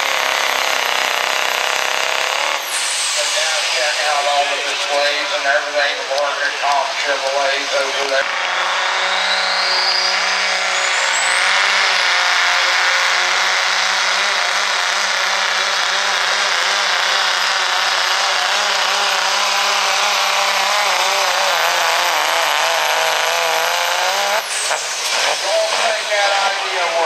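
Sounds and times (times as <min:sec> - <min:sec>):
diesel truck engine under load: 0:00.0 - 0:27.0
turbo whistle: 0:09.1 - 0:12.4.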